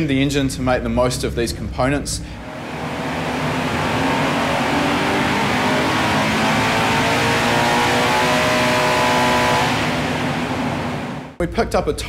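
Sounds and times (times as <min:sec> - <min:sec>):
car engine revving on dyno: 0:02.3 - 0:11.4.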